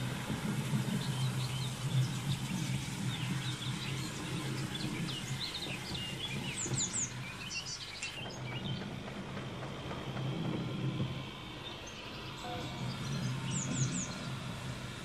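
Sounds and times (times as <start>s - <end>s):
low steady hum: 0.0s - 15.0s
birds singing: 0.6s - 15.0s.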